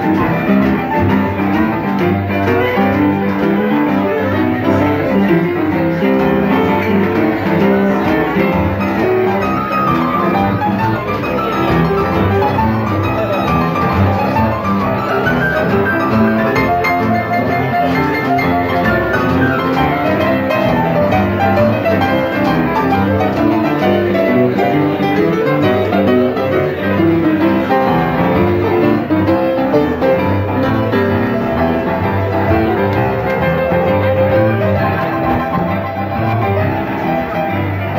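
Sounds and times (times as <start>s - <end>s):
boogie-woogie piano playing: 0.0s - 37.9s.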